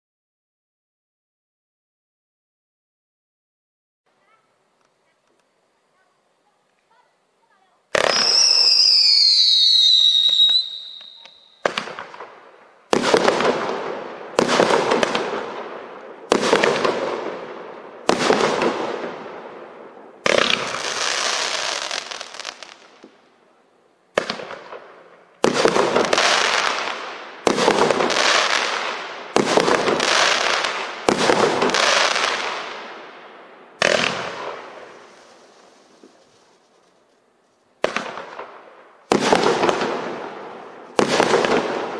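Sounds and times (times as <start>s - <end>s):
firework shots: 7.9s - 23.3s, 24.1s - 37.0s, 37.8s - 41.9s
firework whistle gliding downward: 8.0s - 11.7s.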